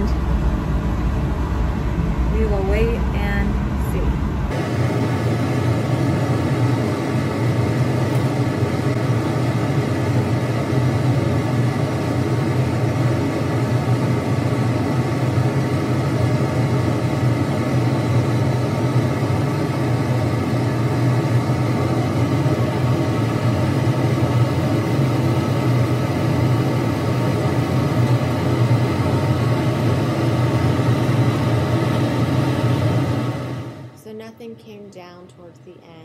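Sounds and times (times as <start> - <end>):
ventilation fan humming: 0.0 - 36.0.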